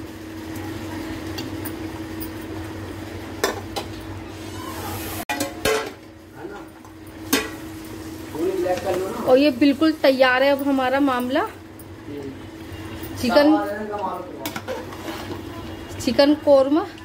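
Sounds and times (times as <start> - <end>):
spoon stirring and scraping pot: 14.4 - 15.9.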